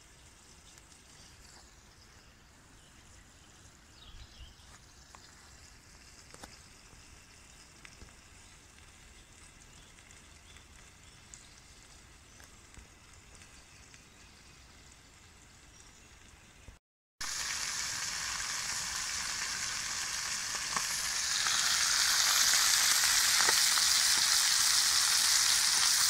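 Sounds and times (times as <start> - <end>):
twigs crackling in stove: 4.7 - 15.8, 17.2 - 26.0
fire pops: 19.2 - 26.0.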